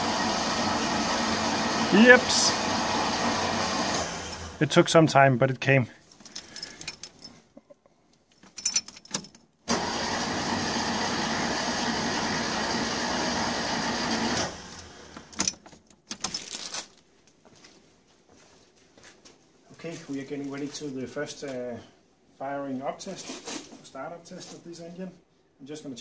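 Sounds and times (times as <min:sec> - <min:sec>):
starter motor cranking: 0:00.0 - 0:04.6, 0:09.7 - 0:15.4.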